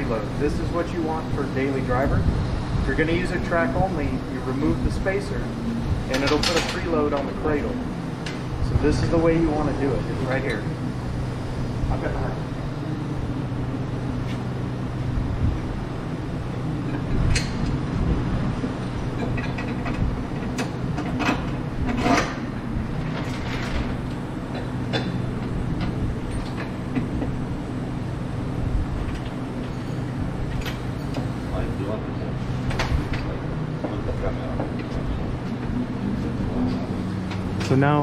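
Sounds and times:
low machine hum: 0:00.0 - 0:38.0.

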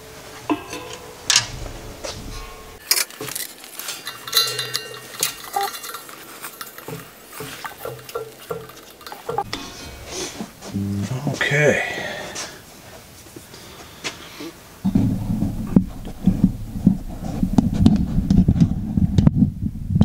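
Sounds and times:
gas regulator being handled: 0:02.8 - 0:09.5
wrench clinking on metal fitting: 0:02.9 - 0:09.5.

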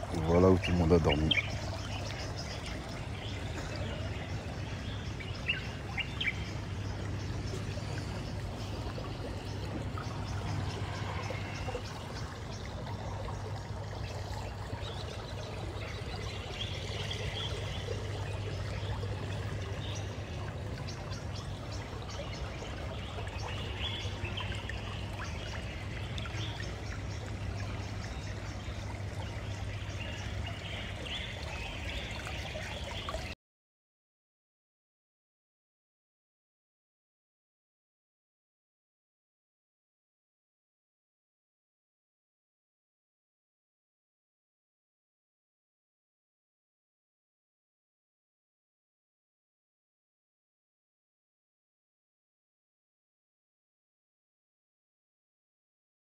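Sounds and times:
water trickling: 0:00.0 - 0:33.4
birds chirping: 0:00.1 - 0:33.4.

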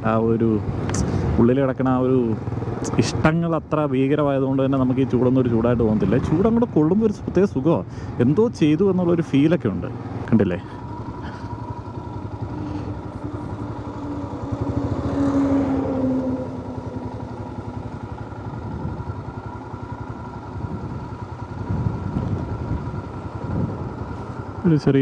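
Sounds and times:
motorcycle engine running: 0:00.0 - 0:25.0
wind noise: 0:18.4 - 0:19.4, 0:20.5 - 0:24.3.

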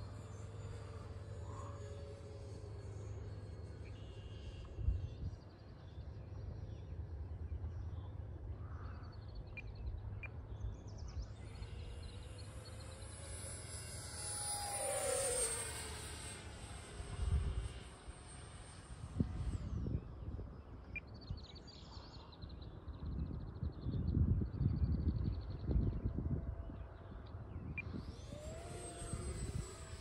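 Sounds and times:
model airplane motor whine: 0:00.0 - 0:08.4, 0:09.1 - 0:22.0, 0:25.2 - 0:30.0
wind rumble on microphone: 0:04.6 - 0:06.8, 0:16.3 - 0:30.0.

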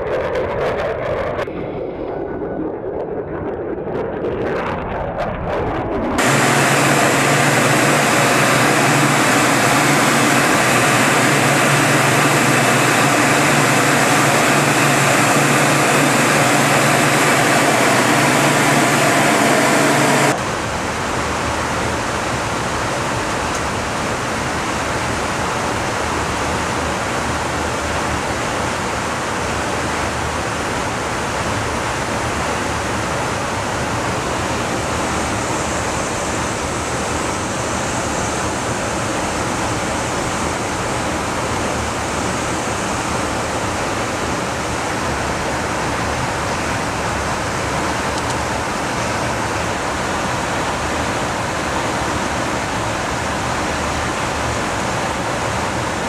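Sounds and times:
aircraft cabin engine and airflow: 0:00.0 - 0:56.0
even rushing hiss: 0:06.2 - 0:20.4.

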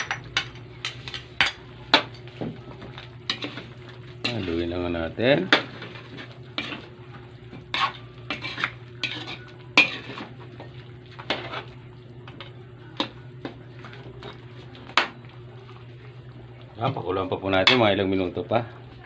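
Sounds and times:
low steady hum: 0:00.0 - 0:19.0
metal spoon scraping wok: 0:07.7 - 0:10.3.

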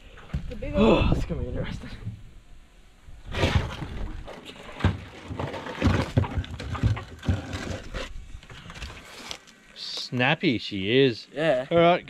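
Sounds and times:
knocks and scrapes on aluminium hull: 0:03.3 - 0:09.0
crab scrabbling against hull: 0:03.3 - 0:09.2.

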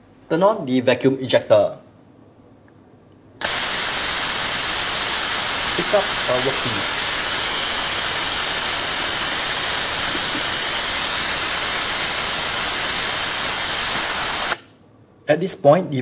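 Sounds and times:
compressed air hissing: 0:03.4 - 0:14.7.

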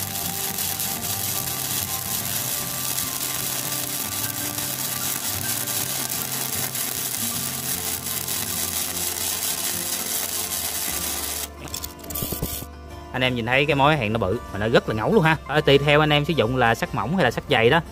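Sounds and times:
welding arc crackling: 0:00.0 - 0:12.7.

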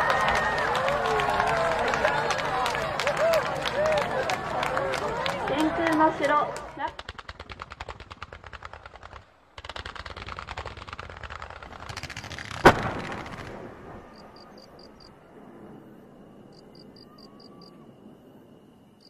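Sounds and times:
fireworks volleys: 0:00.0 - 0:18.6
loud firework bang: 0:11.8 - 0:15.0
faint high chirps: 0:14.0 - 0:19.0.

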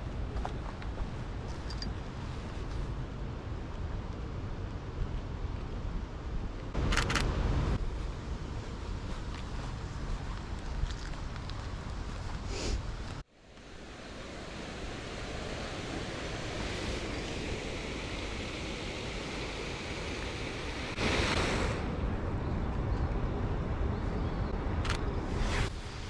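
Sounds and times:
city street ambience: 0:00.0 - 0:13.4, 0:21.0 - 0:26.0.

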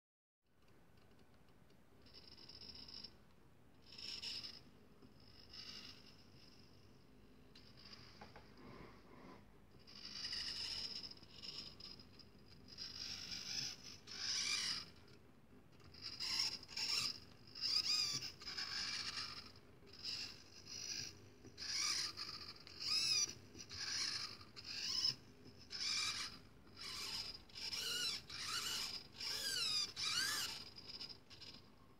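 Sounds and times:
servo motor whining: 0:16.1 - 0:31.6.

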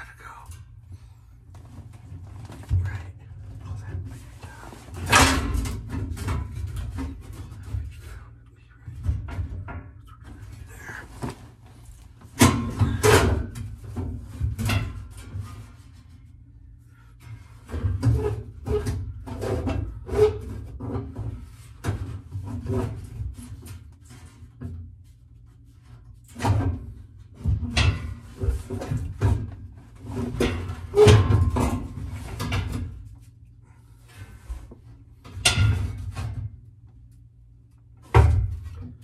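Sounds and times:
steady low hum: 0:00.0 - 0:17.8.

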